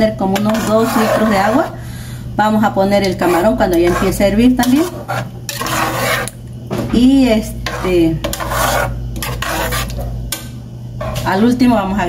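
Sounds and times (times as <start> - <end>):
metal spoon scraping a pot: 0.3 - 1.8, 3.0 - 6.4, 7.4 - 10.1.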